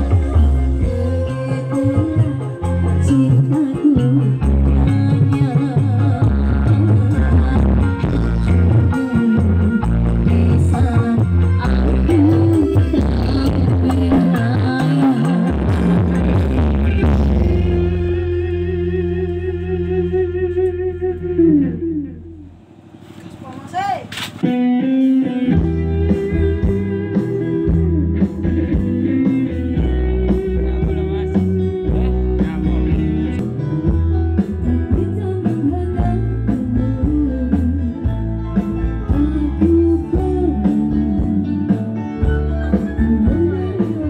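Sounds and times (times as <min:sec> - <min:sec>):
guitar music with heavy bass beat: 0:00.0 - 0:22.6, 0:24.4 - 0:44.0.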